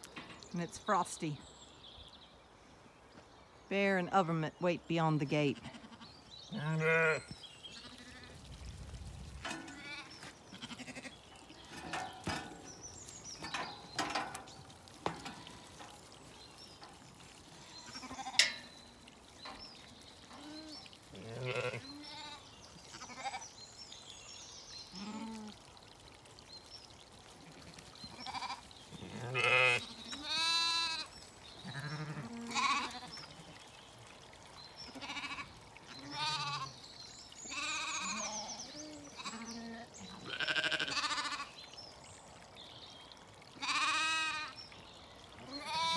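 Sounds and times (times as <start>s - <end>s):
sheep bleating: 5.6s - 8.3s, 9.8s - 11.1s, 20.4s - 23.4s, 28.2s - 33.1s, 35.0s - 36.7s, 37.5s - 38.5s, 39.1s - 41.5s, 43.6s - 44.5s, 45.5s - 45.9s.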